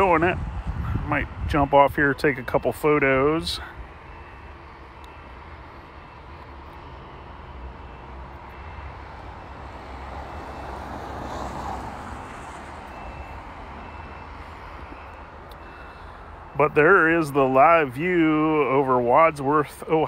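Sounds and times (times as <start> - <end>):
traffic rumble: 0.0 - 20.0
vehicle passing: 6.8 - 18.1.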